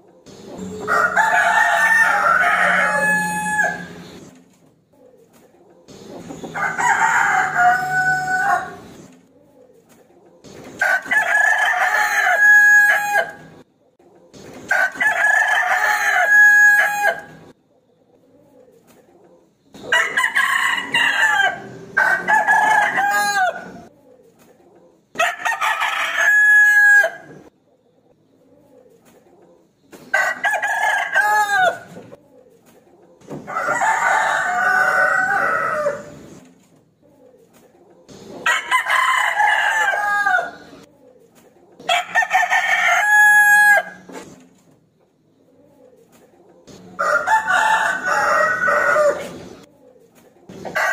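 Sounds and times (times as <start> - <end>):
rooster crowing: 0.6 - 4.1, 6.5 - 8.8, 10.8 - 13.5, 14.7 - 17.4, 19.9 - 23.9, 25.2 - 27.3, 30.1 - 32.0, 33.4 - 36.2, 38.4 - 40.8, 41.9 - 44.1, 46.8 - 49.6, 50.6 - 50.9.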